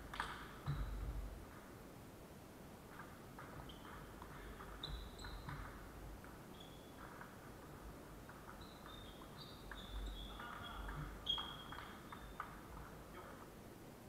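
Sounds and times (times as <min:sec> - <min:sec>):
table tennis ball clicking: 0:00.1 - 0:00.7, 0:02.9 - 0:12.9
sneakers squeaking on wooden floor: 0:00.2 - 0:01.3, 0:03.4 - 0:13.3.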